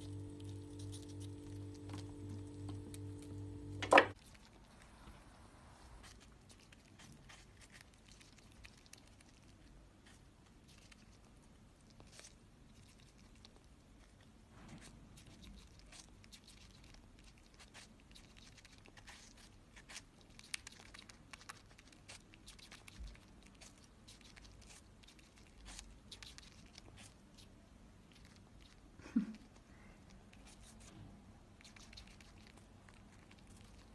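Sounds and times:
squirrel gnawing apple: 0.0s - 33.9s.

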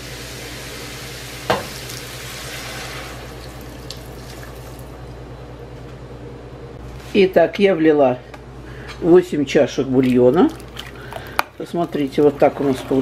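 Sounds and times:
pan sizzling: 0.0s - 4.6s
broth pouring into a pot: 0.1s - 5.0s.

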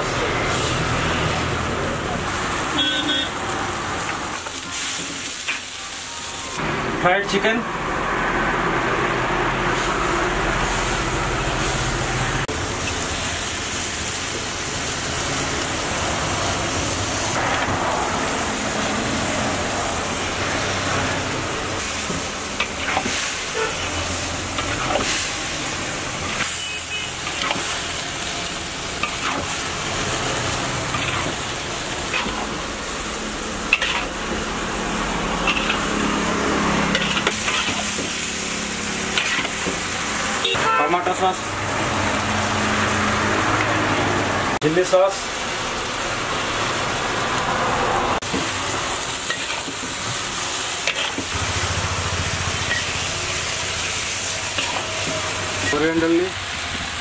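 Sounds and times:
chicken sizzling in wok: 0.0s - 57.0s
ladle clanking and scraping wok: 4.0s - 6.0s, 9.7s - 17.8s, 18.4s - 44.1s, 48.2s - 57.0s.

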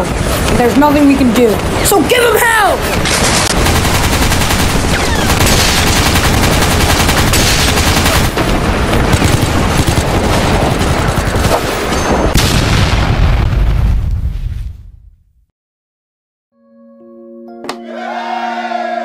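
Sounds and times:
rifle shots: 2.9s - 13.0s
machine-gun bursts: 3.0s - 8.4s.

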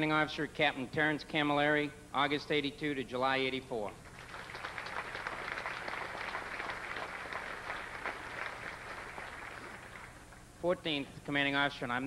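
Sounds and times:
audience applauding: 4.1s - 10.2s.

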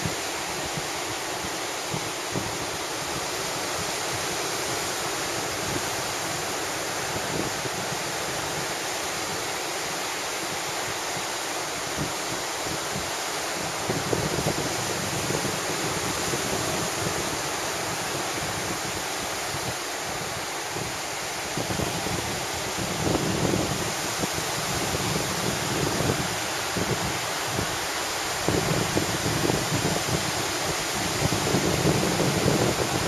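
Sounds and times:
wind buffeting microphone: 11.9s - 33.0s.

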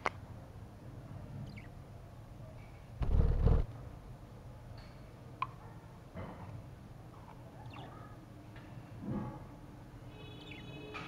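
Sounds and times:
budgerigars chirping: 1.4s - 1.8s, 7.7s - 8.0s.

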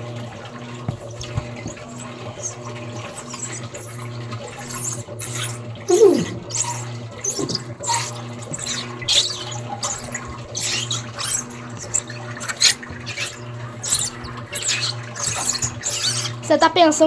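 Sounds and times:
washing machine motor hum: 0.0s - 17.0s
water and clothes sloshing: 0.0s - 17.0s.

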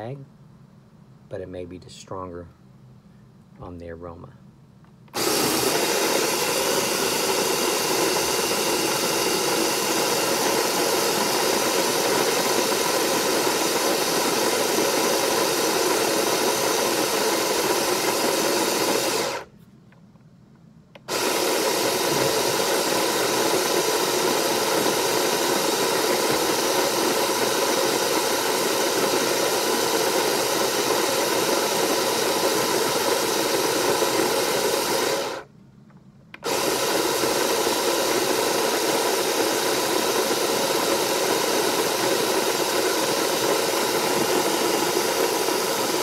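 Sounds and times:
coffee grinder grinding beans: 5.2s - 19.5s, 21.0s - 35.5s, 36.4s - 46.0s.

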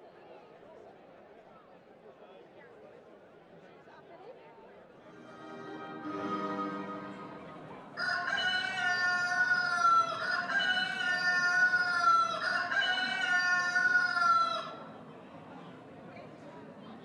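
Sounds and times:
rooster crowing: 8.0s - 14.8s.

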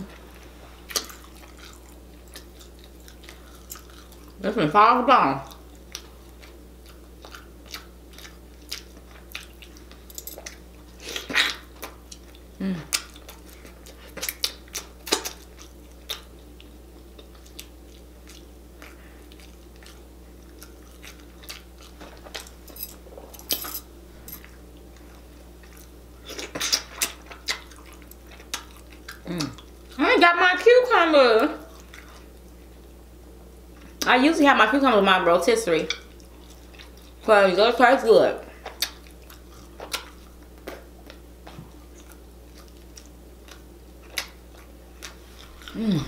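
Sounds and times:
chewing and lip smacking: 0.0s - 4.4s, 5.4s - 23.4s, 24.3s - 30.0s, 31.4s - 32.9s, 35.9s - 37.3s, 38.5s - 46.0s
faint steady hum: 0.0s - 46.0s.

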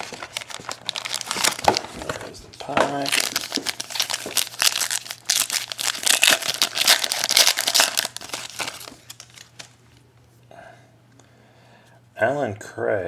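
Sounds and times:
foil wrapper crinkling: 0.0s - 9.8s.

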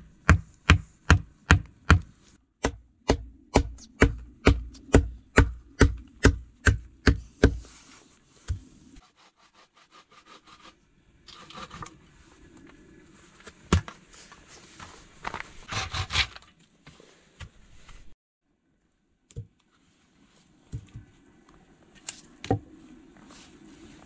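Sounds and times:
hatchet chopping wooden post: 0.2s - 7.6s.

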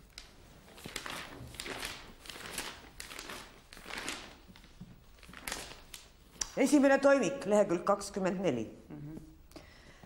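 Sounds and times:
paper pages rustling: 0.0s - 6.2s.

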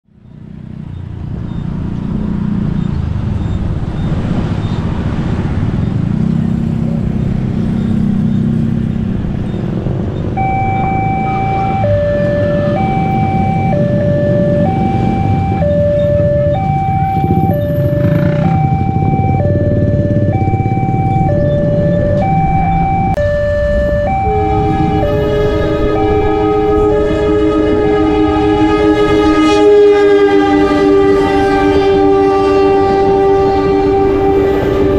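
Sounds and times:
motorcycles and road traffic: 0.0s - 34.9s
two-tone level crossing alarm: 10.3s - 34.9s.

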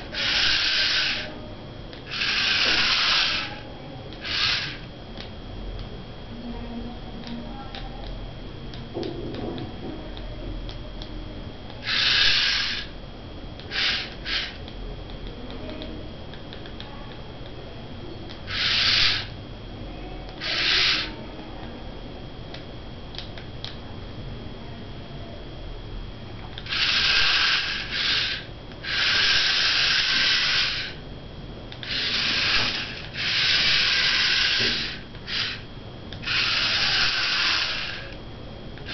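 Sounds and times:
small gear motors whirring: 0.0s - 4.9s, 11.8s - 13.0s, 13.6s - 14.7s, 18.4s - 19.3s, 20.3s - 21.2s, 26.6s - 31.0s, 31.7s - 38.2s.

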